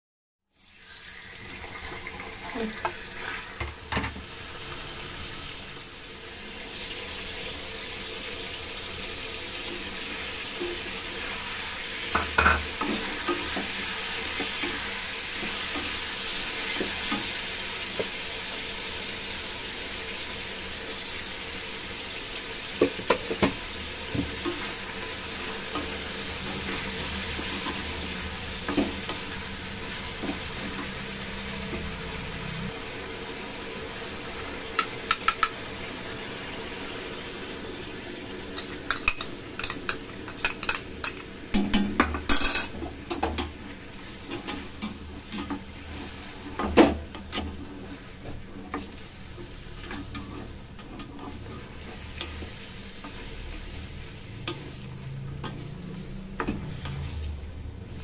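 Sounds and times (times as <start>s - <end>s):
chicken sizzling in oil: 0.5s - 58.0s
spatula scraping wok: 0.6s - 5.6s, 9.3s - 20.0s, 22.6s - 33.0s, 38.4s - 58.0s.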